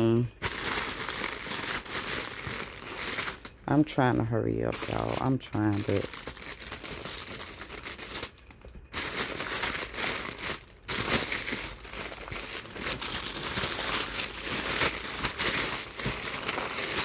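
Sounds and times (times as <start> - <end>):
plastic wrapping crinkling: 0.3 - 17.0
scissors cutting plastic: 9.2 - 17.0.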